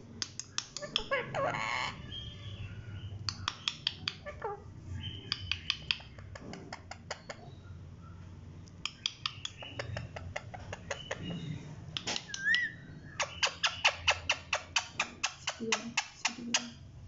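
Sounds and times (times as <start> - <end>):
sharp clicks: 0.2 - 1.1, 3.2 - 4.2, 5.3 - 6.3, 8.6 - 10.0.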